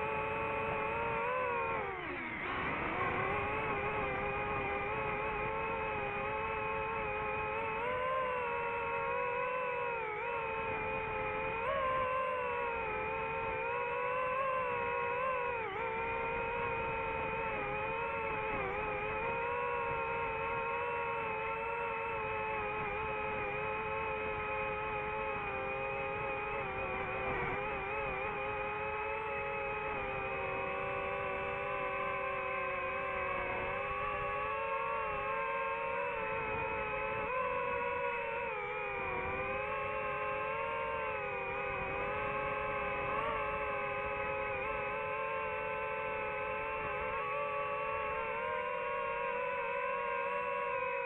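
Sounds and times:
drone propellers whining: 0:00.0 - 0:51.0.

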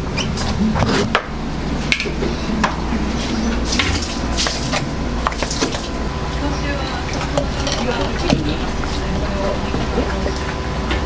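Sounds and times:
low hum: 0:00.0 - 0:11.0
kitchen utensils clinking: 0:03.4 - 0:10.5.

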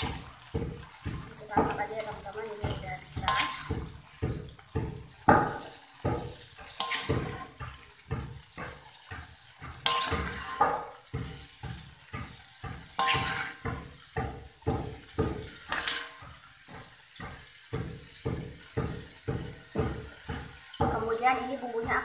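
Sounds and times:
hot oil sizzling in a wok: 0:00.0 - 0:22.0.

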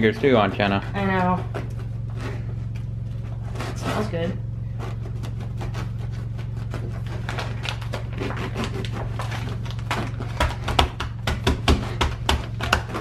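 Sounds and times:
knife sawing through bread crust: 0:00.0 - 0:02.6, 0:03.2 - 0:10.7
steady low hum: 0:00.0 - 0:13.0.

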